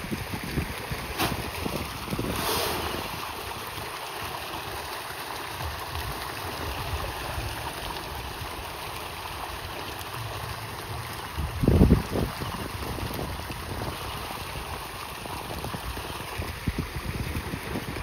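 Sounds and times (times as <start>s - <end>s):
wind rumble on microphone: 0.0s - 3.9s, 10.2s - 18.0s
running water rushing: 0.0s - 18.0s.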